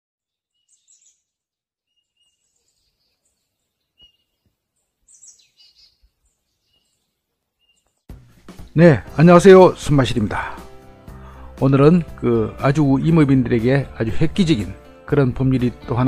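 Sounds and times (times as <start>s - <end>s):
faint birdsong: 0.2s - 8.9s.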